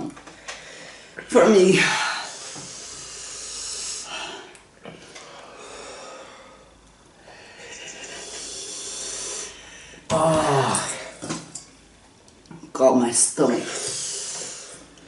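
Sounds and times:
person panting heavily: 5.5 - 11.2.

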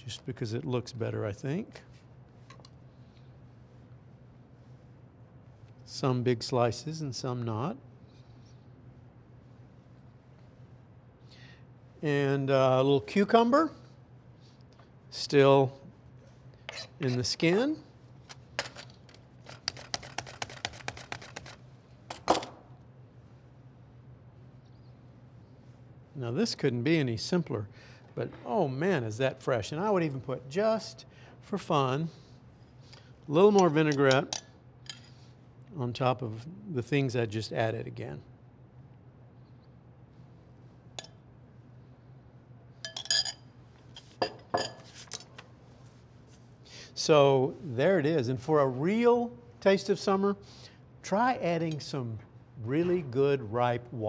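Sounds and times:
spoon clinking against glass bowl: 42.8 - 43.4.

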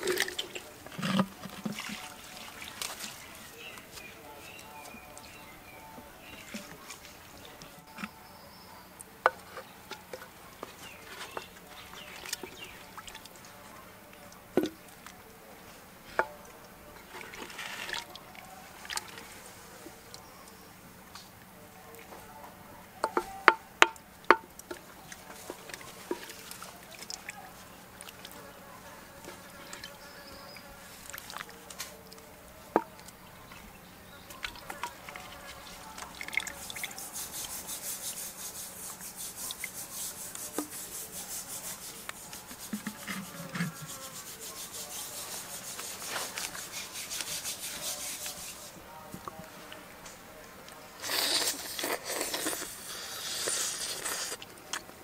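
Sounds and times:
knocks and scrapes of bowl handling: 0.0 - 5.0, 23.0 - 28.4, 34.4 - 49.3
ladle clacking against clay pot: 23.0 - 27.3, 36.0 - 45.3.

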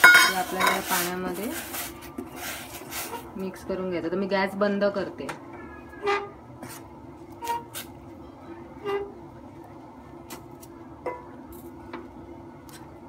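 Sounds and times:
spoon knocking metal pot: 0.0 - 0.8
spoon stirring in pot: 0.0 - 3.3.

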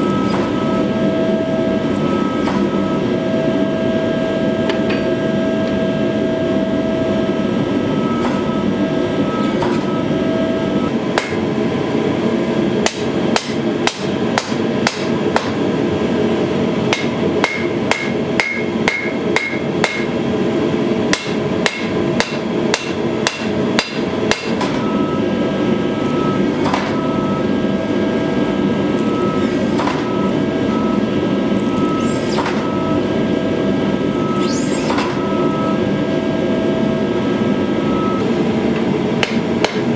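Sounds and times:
machine motor hum: 0.0 - 39.9
hammer striking metal on anvil: 11.1 - 11.4, 12.8 - 15.6, 16.9 - 20.2, 21.1 - 24.8, 39.2 - 39.9.

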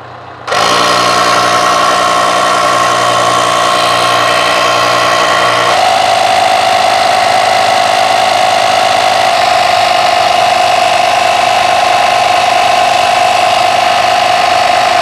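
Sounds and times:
electric compressor whining: 0.0 - 15.0.

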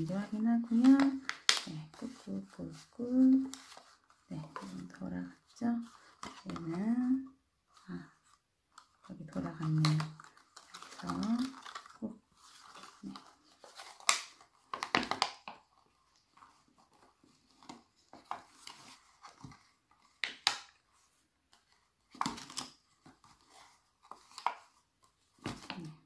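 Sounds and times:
plastic strips crinkling: 0.0 - 7.2, 7.8 - 20.8.

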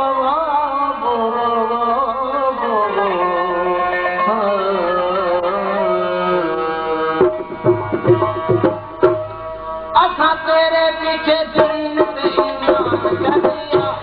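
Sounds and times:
wavering instrumental melody: 3.8 - 14.0
tabla strokes with bending bass: 5.9 - 10.2, 10.9 - 14.0.

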